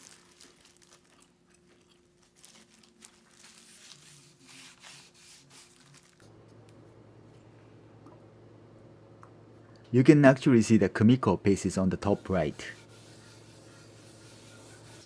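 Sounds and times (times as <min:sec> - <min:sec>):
faint low hum: 0:05.4 - 0:15.0
cloth rubbing on wooden board: 0:12.0 - 0:15.0.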